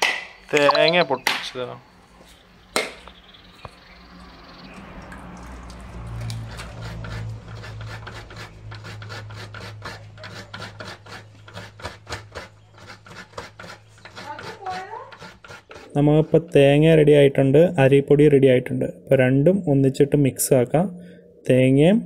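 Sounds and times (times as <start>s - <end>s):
hands rubbing coconut in steel bowl: 5.2s - 17.1s.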